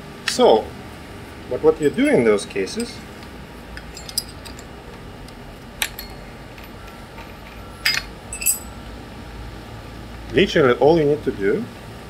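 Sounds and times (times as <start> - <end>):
light metallic clinks: 1.8 - 3.1, 3.8 - 4.8, 5.8 - 8.8.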